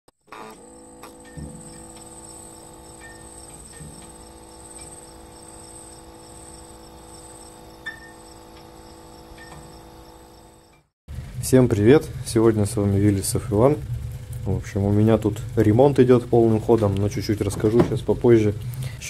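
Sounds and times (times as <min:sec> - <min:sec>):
crickets chirping: 0:00.2 - 0:10.9
low steady hum: 0:00.3 - 0:19.0.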